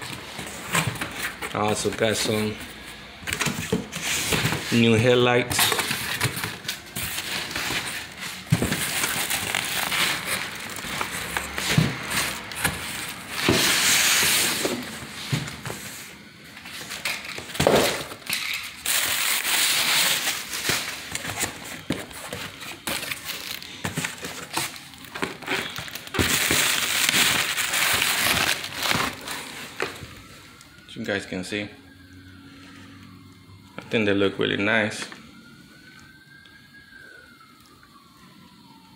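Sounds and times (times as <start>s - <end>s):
plastic wrapping crinkling: 0.0s - 31.1s.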